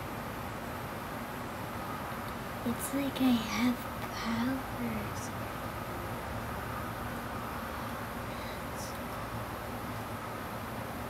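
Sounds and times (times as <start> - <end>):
background hiss: 0.0 - 11.0
faint low hum: 0.0 - 11.0.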